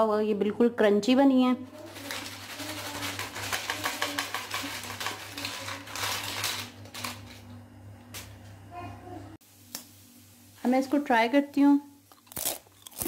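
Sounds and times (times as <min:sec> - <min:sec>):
chips rattling in mesh skimmer: 0:01.8 - 0:07.4.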